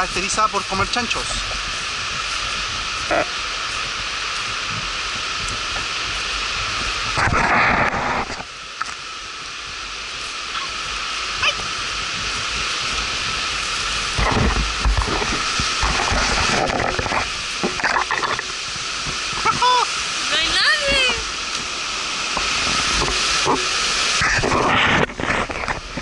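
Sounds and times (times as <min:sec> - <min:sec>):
footsteps on forest trail: 0:00.0 - 0:06.9
noise bursts on microphone: 0:00.0 - 0:26.0
rustling of brush and leaves: 0:00.0 - 0:26.0
steady high hiss: 0:00.0 - 0:26.0.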